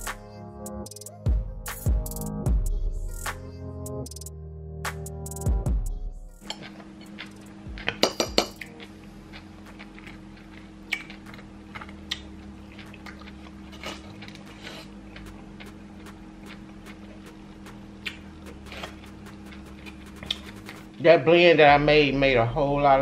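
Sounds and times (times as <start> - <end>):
steady low hum: 0.0 - 23.0
metal fork clinking on dishes: 7.9 - 8.7.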